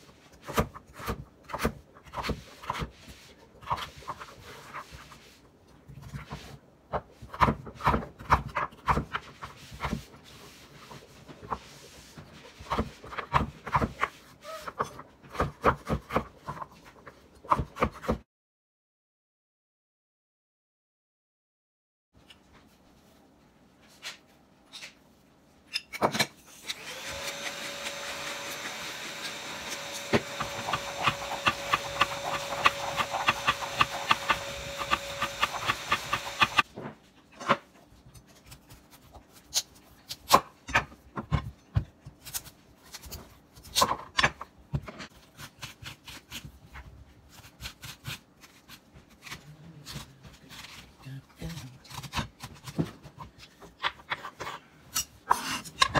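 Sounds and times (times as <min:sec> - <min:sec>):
whirring grinding with ticking: 0:26.7 - 0:36.6.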